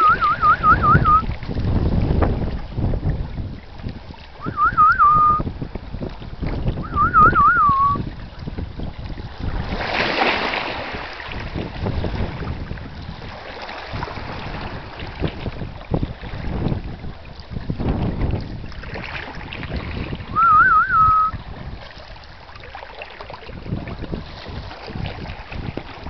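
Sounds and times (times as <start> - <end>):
warbling whistled calls: 0.0 - 1.2, 4.4 - 5.4, 6.8 - 8.0, 20.4 - 21.4
wind buffeting microphone: 0.0 - 26.0.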